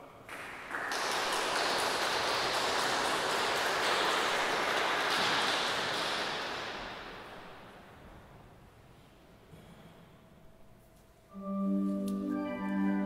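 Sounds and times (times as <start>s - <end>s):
audience applauding: 0.3s - 7.6s.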